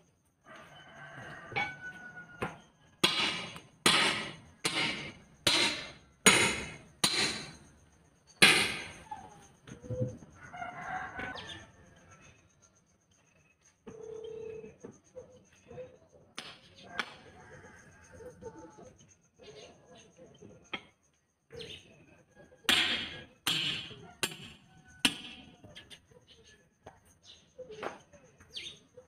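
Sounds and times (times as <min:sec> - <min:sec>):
heavy hammer blows: 0:03.0 - 0:07.6.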